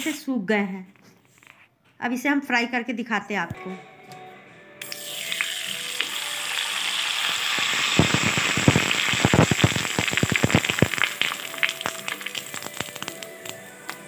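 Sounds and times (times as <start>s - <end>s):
papad sizzling and crackling in oil: 4.8s - 14.0s.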